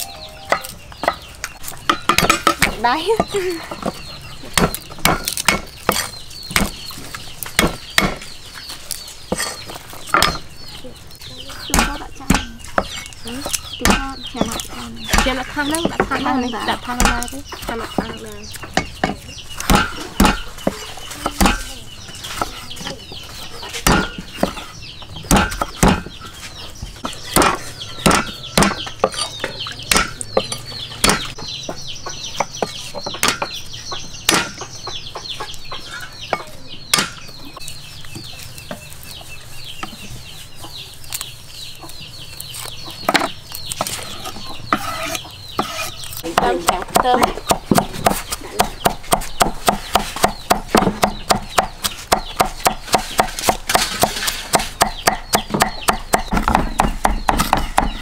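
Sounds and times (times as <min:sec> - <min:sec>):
cleaver chopping on block: 0:04.6 - 0:06.8, 0:18.8 - 0:21.7, 0:23.8 - 0:24.6, 0:25.3 - 0:26.1, 0:27.3 - 0:29.2, 0:29.9 - 0:31.4, 0:33.2 - 0:33.6, 0:34.3 - 0:34.6, 0:36.9 - 0:37.2, 0:44.7 - 0:58.0.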